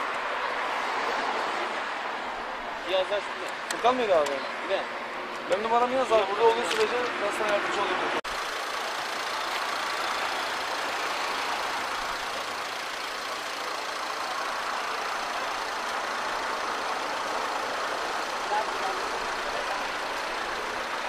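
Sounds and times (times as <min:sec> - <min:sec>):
vehicle engine idling: 0:08.3 - 0:21.0.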